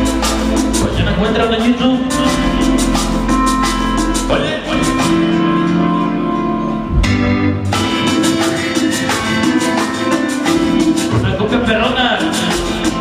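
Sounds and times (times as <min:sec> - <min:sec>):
steady percussion rhythm: 0:00.0 - 0:05.8, 0:06.9 - 0:13.0
cumbia music over sound system: 0:00.0 - 0:13.0.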